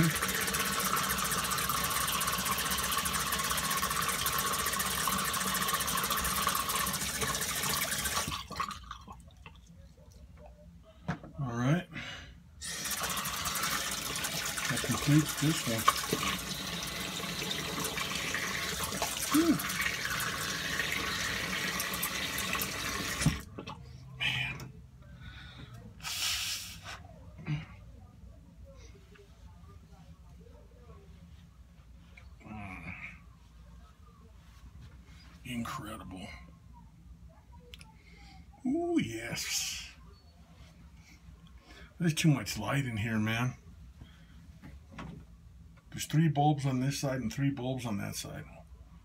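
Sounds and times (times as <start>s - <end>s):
tap water running into sink: 0.0s - 9.6s, 12.7s - 23.5s.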